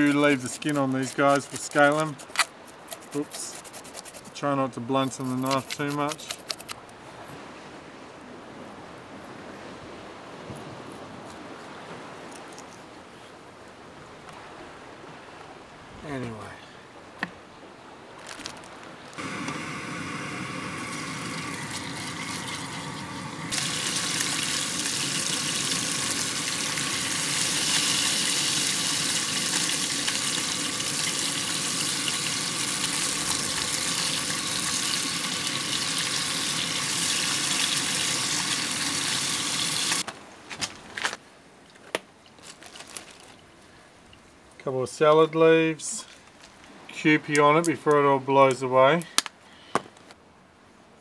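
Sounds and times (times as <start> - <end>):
rustles: 15.2 - 19.2, 40.0 - 44.6, 45.8 - 47.0
fish sizzling in a pan: 19.2 - 40.0.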